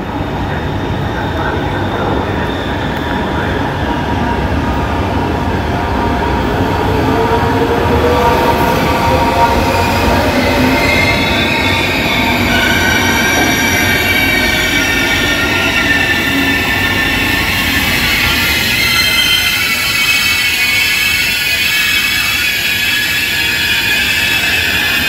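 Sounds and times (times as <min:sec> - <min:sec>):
train rumbling: 0:00.0 - 0:25.0.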